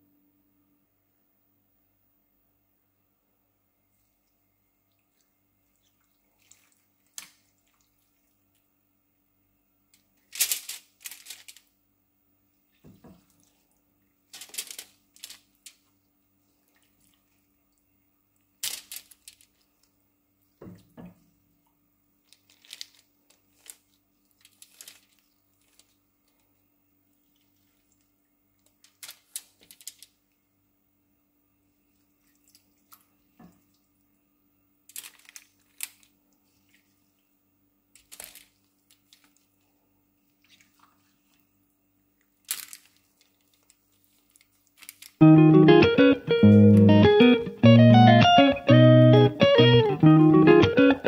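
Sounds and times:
wet squishes of raw chicken: 0:04.0 - 0:08.8, 0:12.5 - 0:30.4, 0:31.8 - 0:34.2, 0:34.9 - 0:45.2
aluminium foil crinkling: 0:06.4 - 0:08.1, 0:10.0 - 0:11.8, 0:14.2 - 0:16.0, 0:18.5 - 0:19.9, 0:22.2 - 0:26.6, 0:27.2 - 0:30.4, 0:34.9 - 0:37.0, 0:37.9 - 0:39.6, 0:42.2 - 0:45.2.

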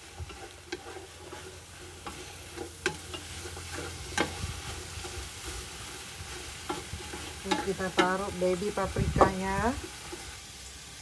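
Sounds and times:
spatula knocking and scraping pot: 0:00.0 - 0:10.3
onions sizzling in oil: 0:00.0 - 0:11.0.

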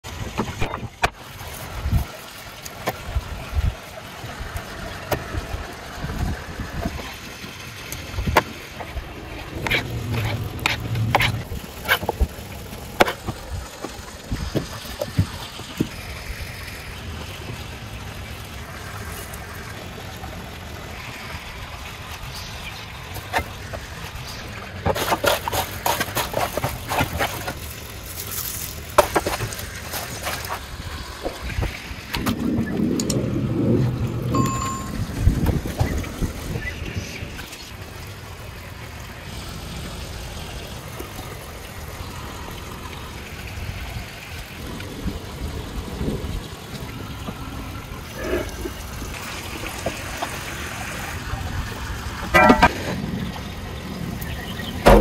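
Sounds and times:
knife cutting vegetables: 0:24.9 - 0:27.6.

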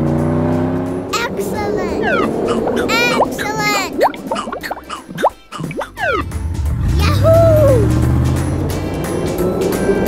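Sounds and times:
cartoon swooping pitch slides: 0:01.9 - 0:06.3.

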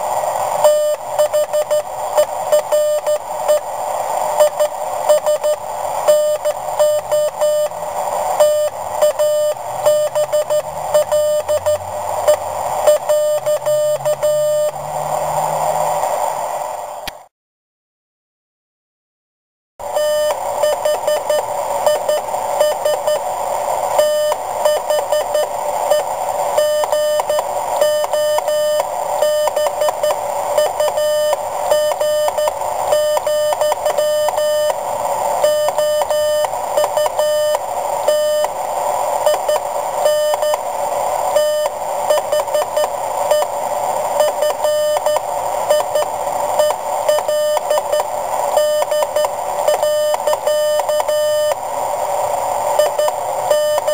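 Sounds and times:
steady hiss: 0:00.0 - 0:17.3, 0:19.8 - 0:53.9
morse code tone: 0:00.6 - 0:03.6, 0:04.4 - 0:07.8, 0:08.4 - 0:14.8, 0:19.9 - 0:23.2, 0:24.0 - 0:34.8, 0:35.4 - 0:38.5, 0:39.3 - 0:40.6, 0:41.3 - 0:43.5, 0:44.2 - 0:51.6, 0:52.8 - 0:53.9.

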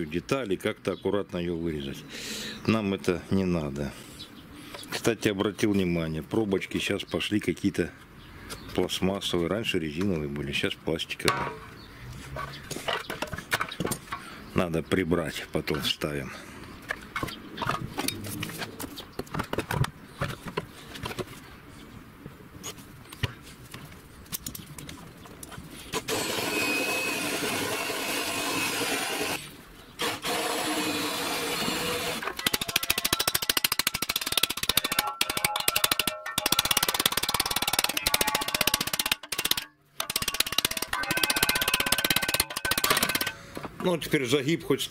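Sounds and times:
cordless drill drilling into steel: 0:26.0 - 0:29.4, 0:30.0 - 0:32.3
sheet steel panels clinking: 0:32.3 - 0:43.4.

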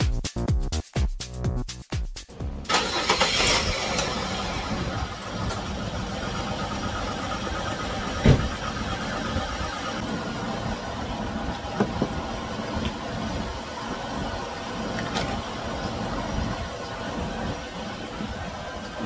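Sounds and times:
car engine idling: 0:02.4 - 0:19.0
sharp thump: 0:08.2 - 0:08.6.

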